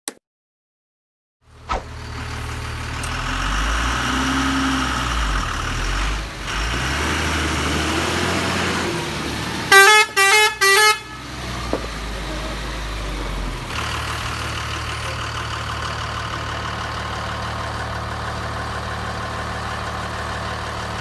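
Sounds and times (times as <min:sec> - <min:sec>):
truck diesel engine running: 0:01.5 - 0:21.0
truck horn blasts: 0:09.7 - 0:11.6.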